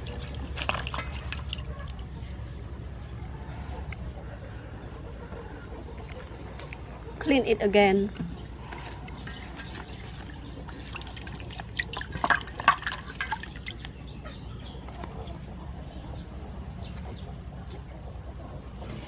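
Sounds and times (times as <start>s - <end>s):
water splashing in a steel bowl: 0.0s - 2.2s, 9.2s - 13.9s.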